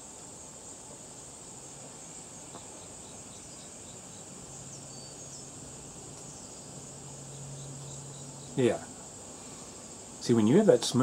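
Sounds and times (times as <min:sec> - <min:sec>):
high-pitched insect chorus: 0:00.0 - 0:11.0
low steady hum: 0:00.0 - 0:11.0.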